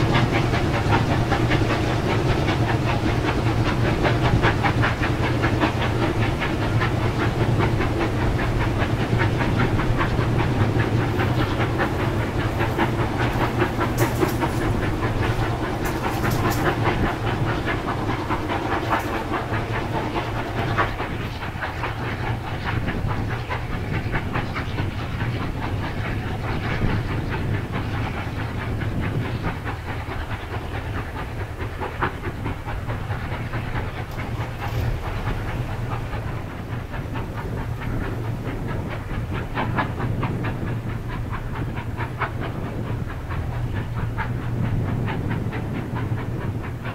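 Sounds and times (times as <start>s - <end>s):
steam locomotive exhaust beating: 0.0s - 46.9s
train wheels clicking over rail joints: 0.0s - 46.9s.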